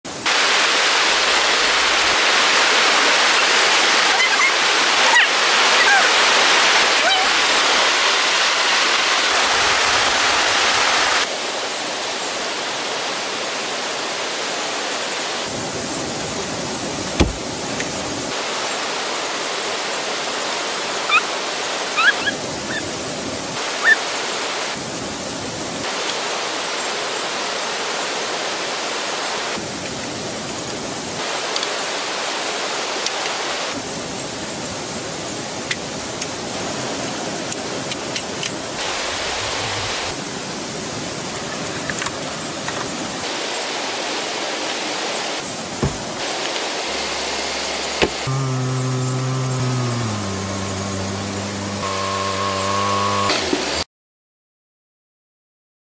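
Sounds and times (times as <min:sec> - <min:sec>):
rushing water: 0:00.1 - 0:53.8.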